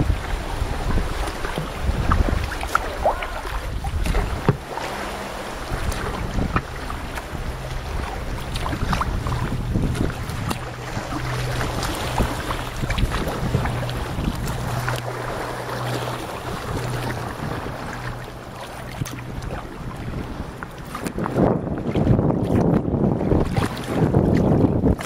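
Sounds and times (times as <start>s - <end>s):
water noise from boat: 0.0s - 25.0s
water splashes: 0.0s - 25.0s
wind on microphone: 0.0s - 25.0s
steady low hum: 3.2s - 20.8s.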